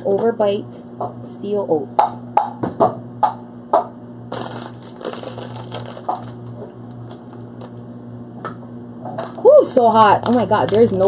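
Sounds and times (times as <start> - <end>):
plastic bag crinkling: 4.3 - 7.8, 10.1 - 11.0.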